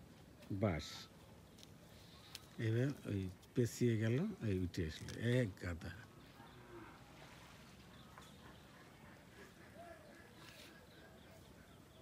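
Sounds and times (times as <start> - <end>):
faint distant calls: 0.6 - 12.0.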